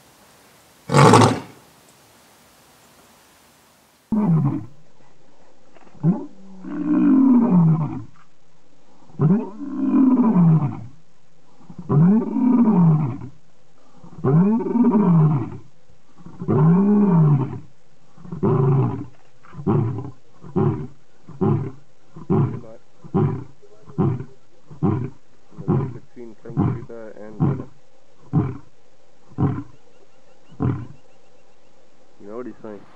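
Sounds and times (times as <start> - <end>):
lion grunting: 0.9 - 1.6, 18.2 - 28.7
lion roaring: 0.9 - 1.6, 18.2 - 28.7.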